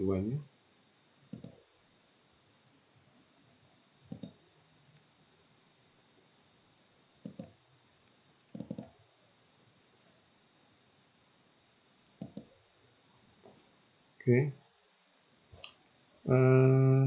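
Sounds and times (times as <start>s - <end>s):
faint hiss: 0.0s - 17.0s
computer mouse clicking: 1.3s - 1.6s, 4.0s - 4.4s, 7.2s - 7.6s, 8.5s - 9.0s, 12.2s - 12.6s.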